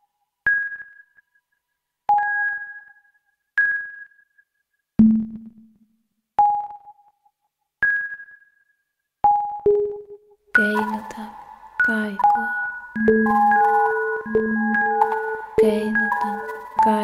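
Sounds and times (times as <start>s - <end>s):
synthesized notes: 9.7s - 17.0s.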